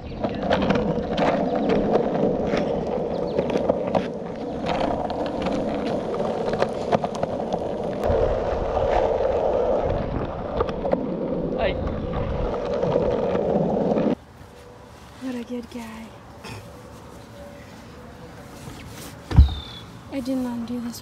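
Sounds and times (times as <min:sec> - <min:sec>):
longboard wheels rolling on asphalt: 0:00.0 - 0:16.3.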